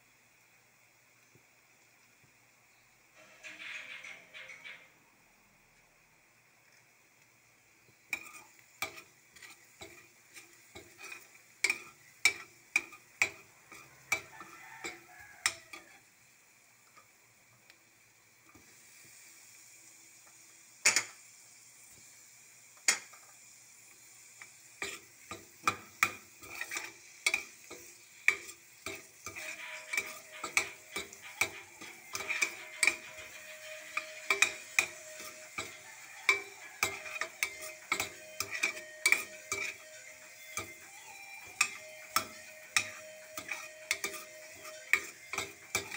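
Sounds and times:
oil sizzling: 0.0s - 45.9s
metal spoon scraping a frying pan: 3.2s - 4.9s, 8.1s - 16.1s, 24.8s - 45.9s.

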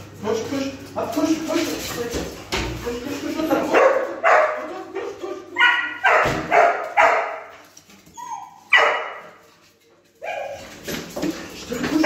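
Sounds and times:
dog barking excitedly: 3.6s - 7.6s, 8.2s - 9.4s, 10.2s - 10.8s.

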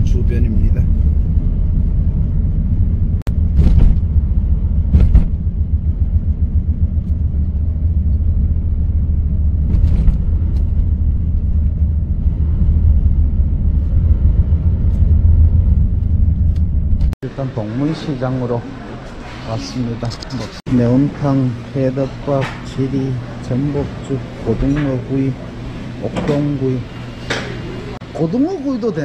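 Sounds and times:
van driving rumble: 0.0s - 17.2s
vehicle bumps: 4.8s - 5.6s.

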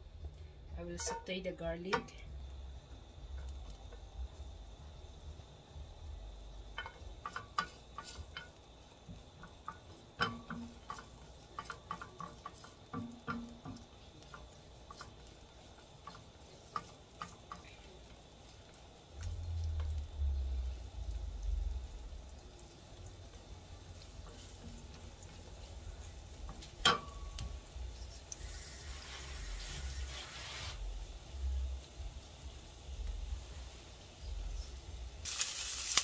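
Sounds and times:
garlic sizzling in oil: 0.8s - 36.0s
spatula scraping and tapping pan: 0.9s - 2.2s, 6.7s - 20.0s, 22.6s - 28.4s.

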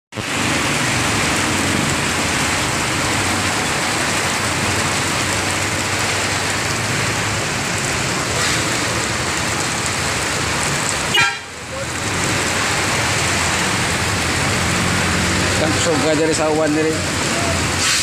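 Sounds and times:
heavy rain hissing: 0.2s - 18.0s
vehicles passing through water: 0.2s - 18.0s.

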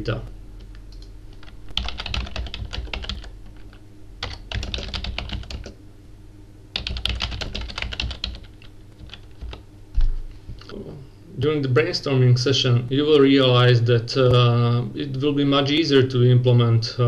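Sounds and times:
computer keyboard typing: 0.9s - 5.8s, 6.8s - 9.6s.

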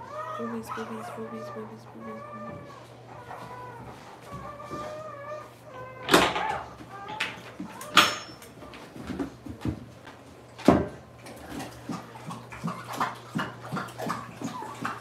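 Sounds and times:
puppies squeaking and whimpering: 0.0s - 8.7s, 12.1s - 15.0s.

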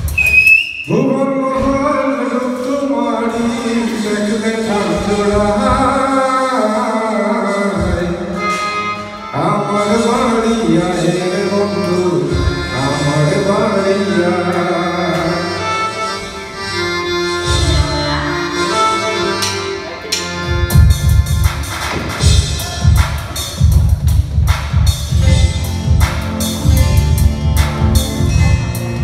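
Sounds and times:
keyboard: 0.0s - 29.0s
man singing into a microphone: 0.9s - 8.6s, 9.3s - 15.6s
electronic drum pads: 19.4s - 29.0s.

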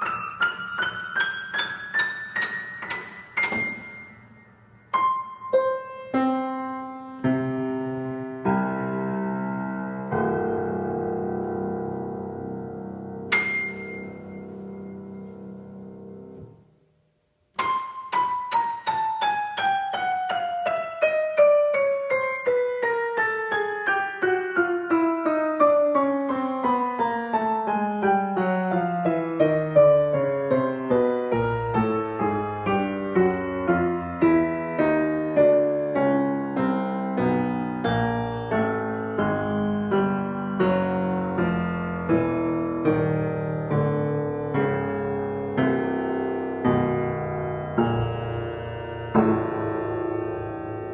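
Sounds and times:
grand piano fast runs: 27.0s - 50.9s.

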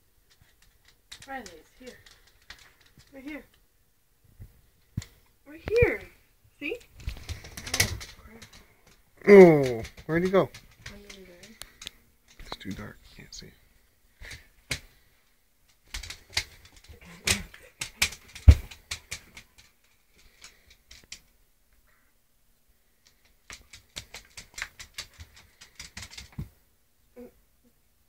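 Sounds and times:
dog claws clicking on wood floor: 0.3s - 3.6s, 6.7s - 12.9s, 14.2s - 15.1s, 15.7s - 21.3s, 23.0s - 26.5s.

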